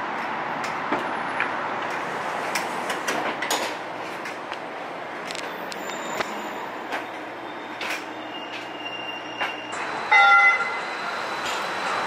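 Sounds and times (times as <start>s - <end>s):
streetcar running noise: 0.0s - 12.0s
streetcar horn toot: 10.1s - 10.8s.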